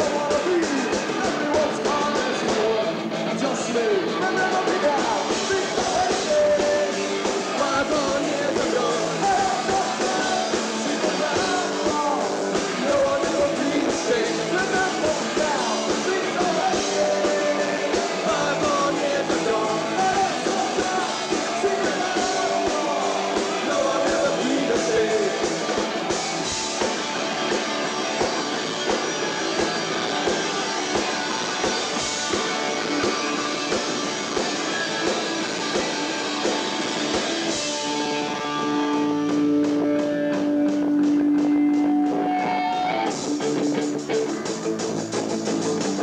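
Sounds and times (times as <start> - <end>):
punk rock band playing live: 0.0 - 46.0
held guitar notes ringing: 26.0 - 44.2.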